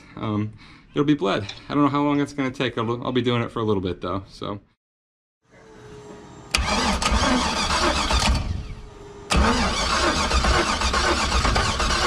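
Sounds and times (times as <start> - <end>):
starter motor cranking engine: 6.5 - 12.0.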